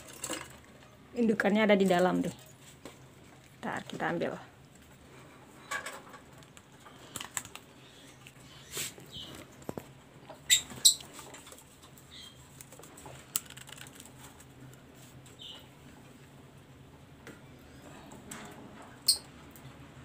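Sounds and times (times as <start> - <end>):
clicks and rustles handling a cage: 0.0 - 1.0, 4.8 - 16.2.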